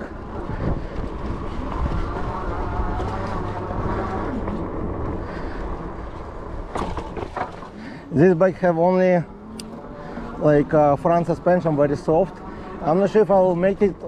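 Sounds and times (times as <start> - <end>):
tyres rumbling on trail: 0.0 - 14.0.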